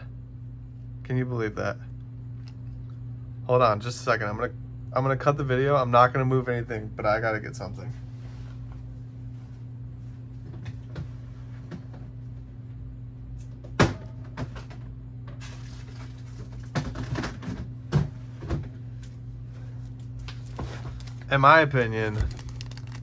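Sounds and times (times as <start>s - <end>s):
low room hum: 0.0s - 23.0s.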